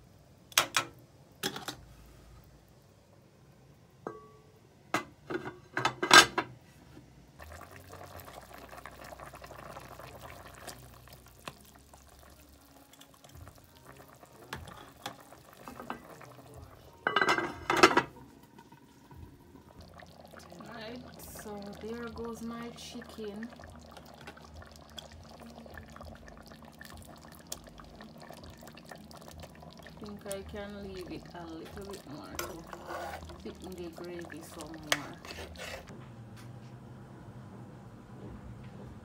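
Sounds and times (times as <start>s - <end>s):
simmering pot hiss: 0.0s - 35.9s
metal spoon scraping a pot: 32.2s - 33.7s, 34.5s - 35.9s.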